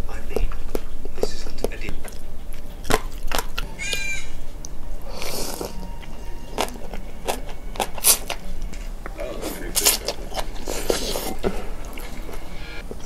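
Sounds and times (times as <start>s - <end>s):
slurping and chewing: 0.3s - 13.0s.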